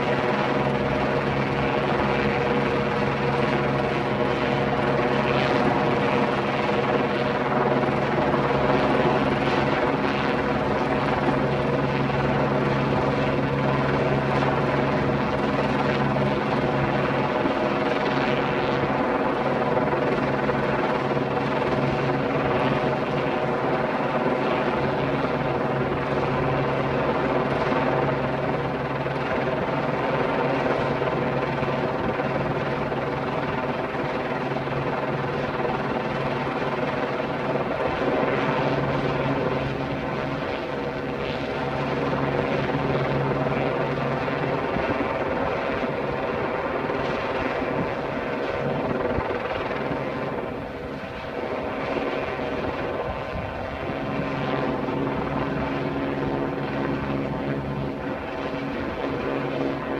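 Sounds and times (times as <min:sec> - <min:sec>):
helicopter drone: 0:00.0 - 0:59.9.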